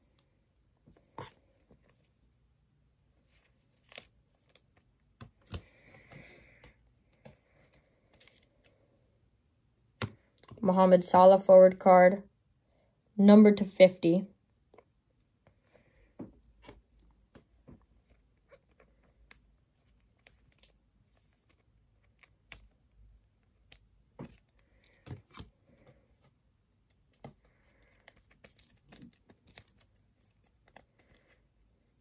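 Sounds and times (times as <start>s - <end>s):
trading cards flipped by hand: 3.3s - 7.4s.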